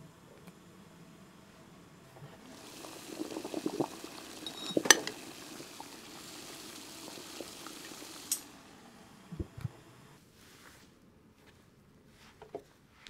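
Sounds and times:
water bubbling: 0:02.3 - 0:09.6
steam hissing: 0:02.4 - 0:10.2.

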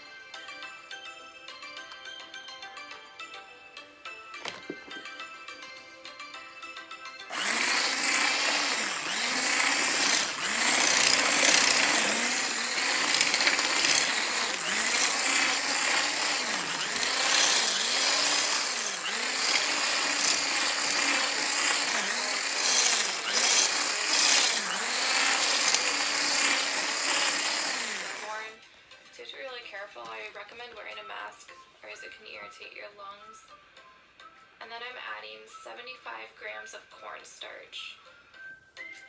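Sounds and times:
electric mixer running: 0:07.2 - 0:28.6.

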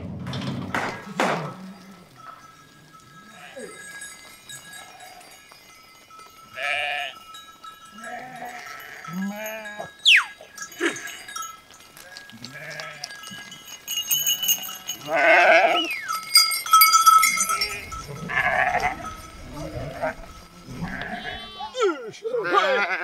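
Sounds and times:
sheep bleating: 0:03.2 - 0:05.4, 0:06.6 - 0:07.2, 0:07.9 - 0:11.3, 0:12.0 - 0:13.6, 0:14.5 - 0:16.1, 0:17.2 - 0:23.0.

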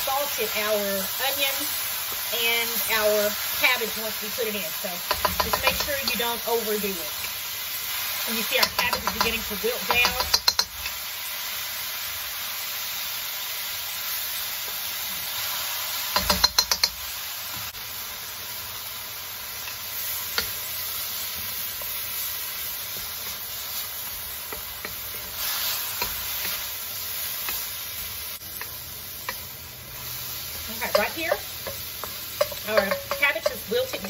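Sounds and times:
vegetables sizzling in a wok: 0:00.0 - 0:34.0
spatula scraping and knocking pan: 0:05.0 - 0:06.3, 0:08.5 - 0:11.0, 0:16.1 - 0:17.0, 0:22.8 - 0:34.0.

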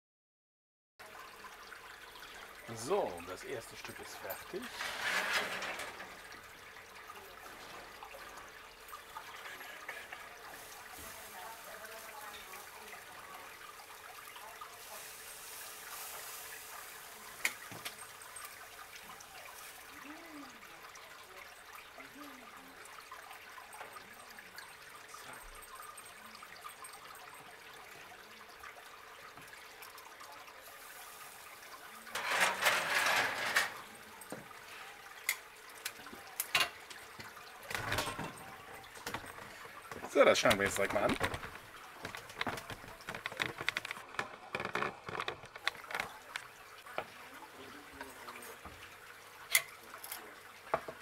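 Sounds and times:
metal grate scraping: 0:03.8 - 0:08.6, 0:32.1 - 0:33.9.

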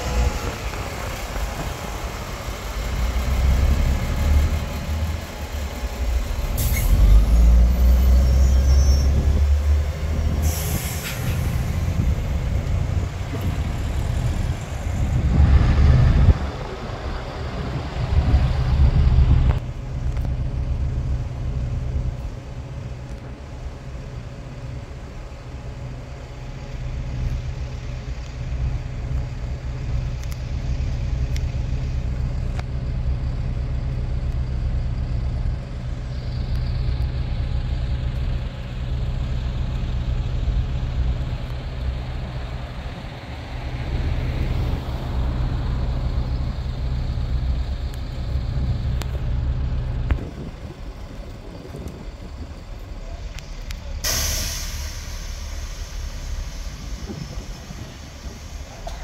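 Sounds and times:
bus engines rumbling in traffic: 0:00.0 - 0:59.0
bus idling: 0:00.0 - 0:59.0
air-brake hisses: 0:06.5 - 0:09.3, 0:10.3 - 0:11.8, 0:53.4 - 0:59.0.

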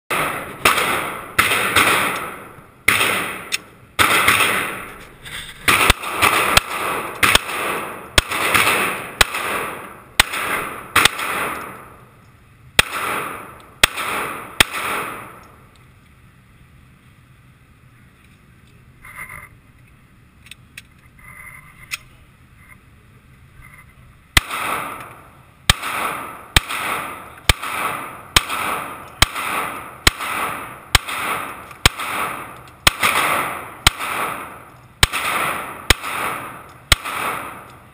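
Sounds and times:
pistol shots echoing indoors: 0:00.1 - 0:04.8, 0:05.7 - 0:11.8, 0:12.8 - 0:15.4, 0:25.7 - 0:37.7.

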